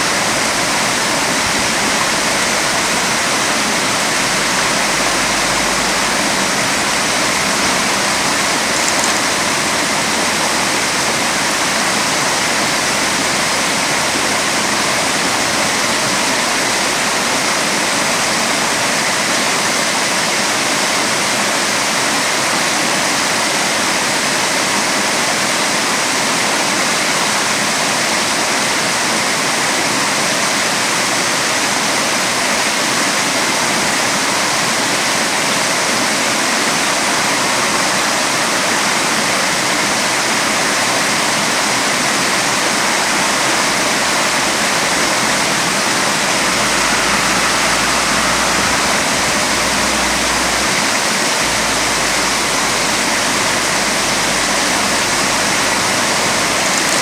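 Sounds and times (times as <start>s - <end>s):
stream running over stones: 0.0s - 57.0s.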